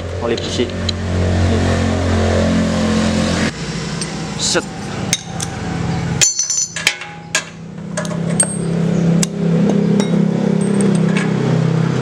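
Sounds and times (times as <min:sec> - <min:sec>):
low engine hum: 0:00.0 - 0:06.4
metal hand tools clinking: 0:06.2 - 0:08.8, 0:10.0 - 0:11.3
ringing metallic clink: 0:06.2 - 0:09.3, 0:10.0 - 0:11.2.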